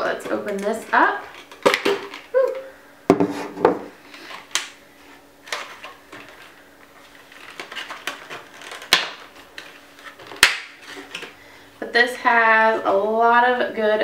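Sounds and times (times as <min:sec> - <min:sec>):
packaging rustling: 0:05.4 - 0:11.4
packaging clicks: 0:07.1 - 0:11.3.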